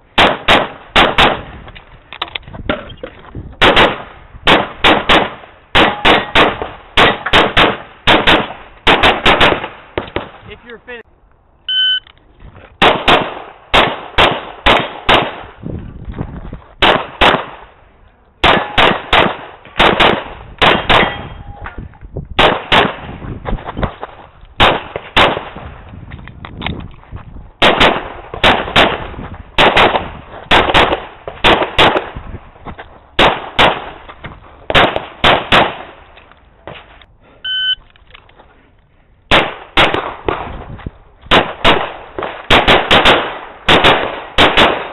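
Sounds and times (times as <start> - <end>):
rapid pistol fire: 0.2 - 1.5, 3.6 - 10.4, 12.8 - 15.6, 16.8 - 17.6, 18.4 - 21.2, 22.4 - 23.2, 24.6 - 25.7, 27.6 - 32.2, 33.2 - 34.0, 34.7 - 36.0, 39.3 - 40.6, 41.3 - 44.9
shot timer beep: 11.7 - 12.1, 37.4 - 37.8.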